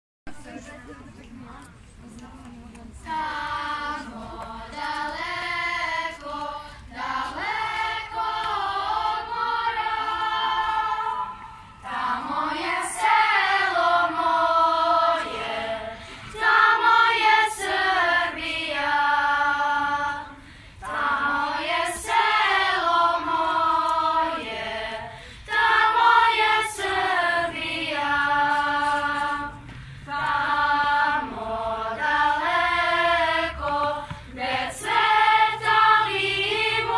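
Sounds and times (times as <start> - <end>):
children's choir singing: 2.9 - 36.9
singers breathing: 6.6 - 6.9, 15.9 - 16.4, 20.3 - 20.8, 25.0 - 25.5, 29.6 - 30.1.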